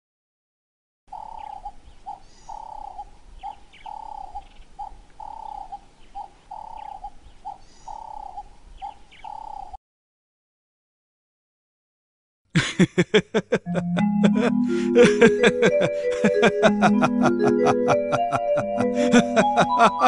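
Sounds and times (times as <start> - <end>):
bird calling: 1.1 - 9.8.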